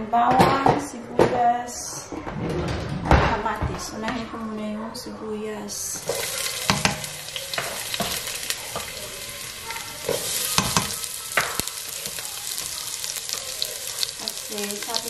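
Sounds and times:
spatula knocking and scraping: 6.0s - 9.0s
onion sizzling in a pot: 6.0s - 15.0s.

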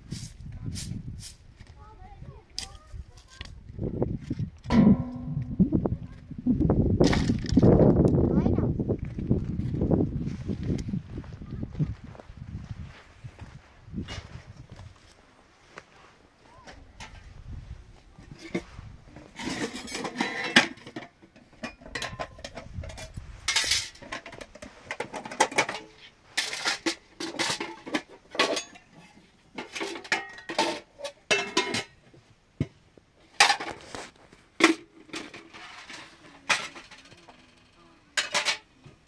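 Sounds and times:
dishes and utensils clattering: 19.3s - 32.0s, 33.4s - 33.8s, 34.6s - 37.6s, 38.2s - 38.7s.

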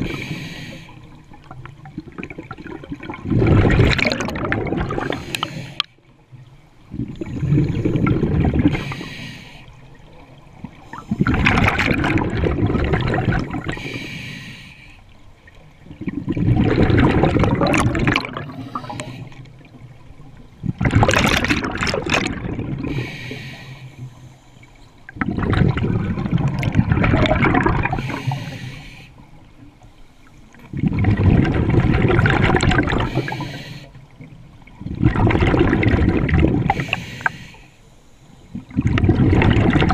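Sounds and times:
regulator inhalation hiss: 0.0s - 1.1s, 5.1s - 5.8s, 8.7s - 9.8s, 13.8s - 15.0s, 22.9s - 24.8s, 27.9s - 29.3s, 33.0s - 34.0s, 36.7s - 38.5s
exhaled bubbles underwater: 0.0s - 14.1s, 15.3s - 29.8s, 30.4s - 37.5s, 38.5s - 39.9s.

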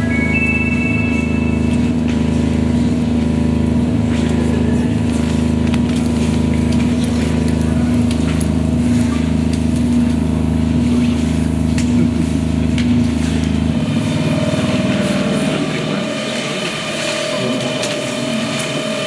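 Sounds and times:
higher steady tone: 0.0s - 3.2s
low droning ambient tones: 0.0s - 19.0s.

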